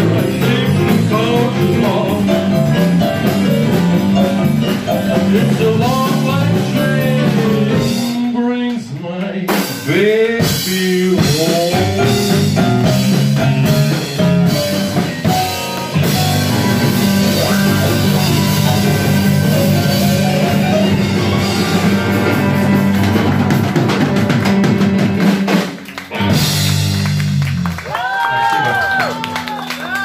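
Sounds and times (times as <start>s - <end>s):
steady drum beat: 0.0s - 29.0s
blues band playing: 0.0s - 30.0s
guitar lead bending notes: 11.8s - 27.7s.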